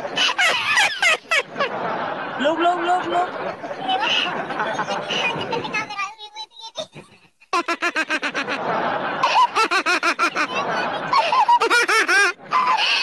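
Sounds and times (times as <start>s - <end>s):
woman laughing hard: 0.0s - 1.8s, 7.6s - 13.0s.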